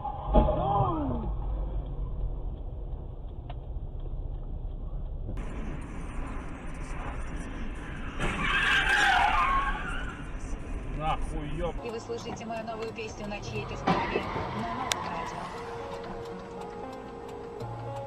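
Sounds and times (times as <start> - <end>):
car driving hum: 0.0 - 18.0
car tyres screeching: 4.8 - 17.3.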